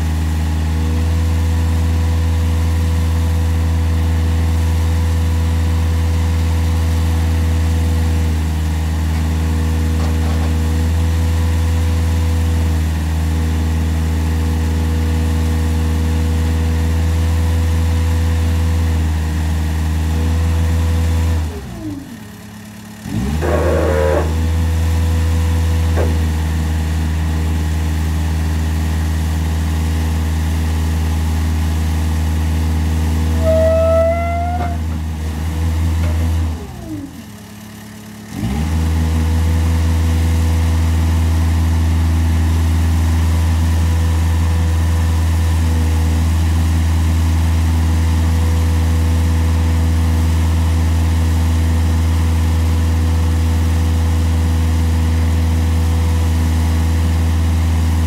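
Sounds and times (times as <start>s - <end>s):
boom lift engine running: 0.0s - 58.0s
brief rising whine: 33.4s - 35.0s.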